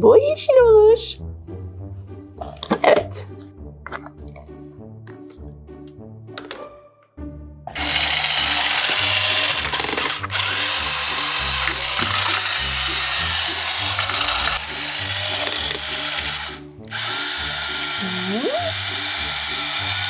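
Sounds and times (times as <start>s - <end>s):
children's music: 0.0s - 20.0s
toy hand mixer whirring: 7.7s - 20.0s.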